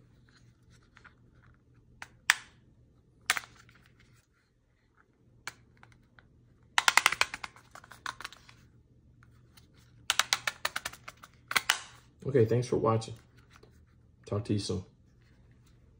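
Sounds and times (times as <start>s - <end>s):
plastic phone holder clicking: 6.8s - 8.3s, 10.1s - 11.9s.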